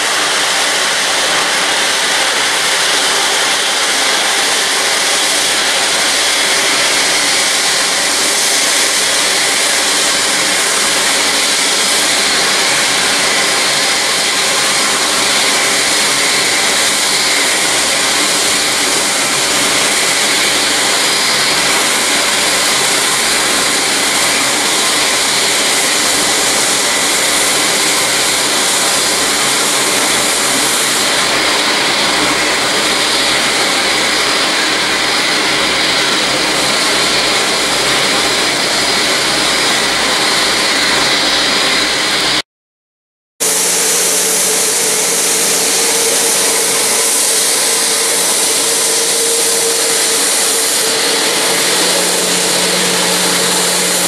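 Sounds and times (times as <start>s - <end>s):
jet engines at takeoff: 0.0s - 42.4s, 43.4s - 54.0s.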